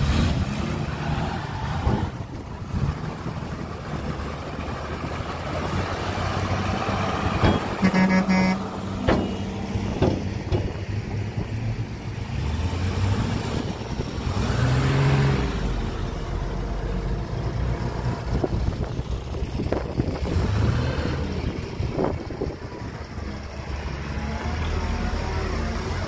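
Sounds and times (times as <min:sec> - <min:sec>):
heavy diesel engine revving: 0:00.0 - 0:26.0
sharp knocks: 0:09.0 - 0:10.8.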